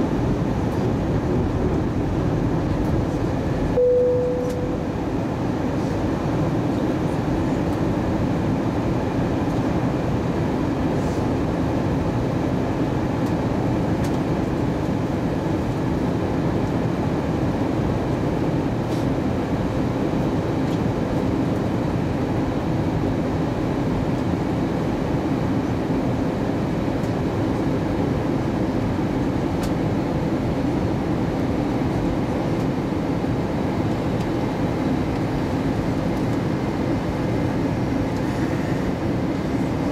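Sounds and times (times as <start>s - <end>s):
faint steady hum: 0.0s - 8.4s
rush of engines and airflow: 0.0s - 39.9s.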